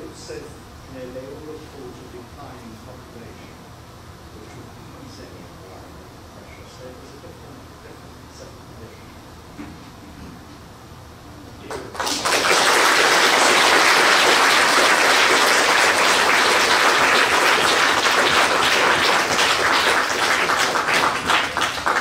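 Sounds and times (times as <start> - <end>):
audience applauding: 11.7 - 22.0.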